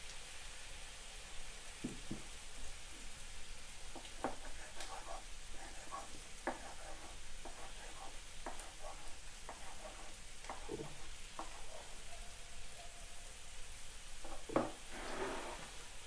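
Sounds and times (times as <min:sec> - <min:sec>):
knife chopping on wooden board: 0:06.5 - 0:06.8, 0:10.5 - 0:11.7, 0:14.2 - 0:14.8.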